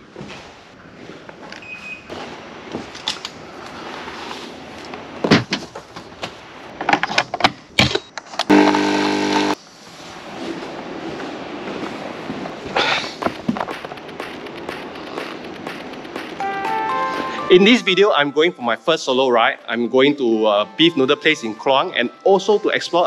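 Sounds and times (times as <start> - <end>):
coffee machine pump buzzing: 8.5 - 9.6.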